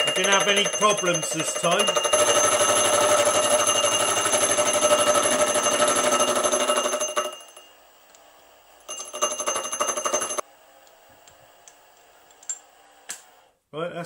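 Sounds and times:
milling machine whining: 0.0s - 7.6s.

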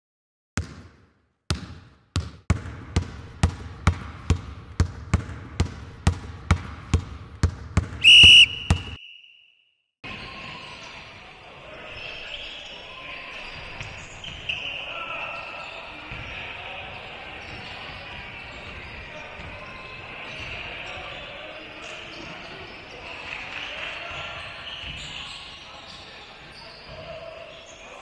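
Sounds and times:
basketball dribbling on hard floor: 0.6s - 9.0s
gym ambience: 7.0s - 9.3s
loud whistle blast: 8.0s - 9.7s.

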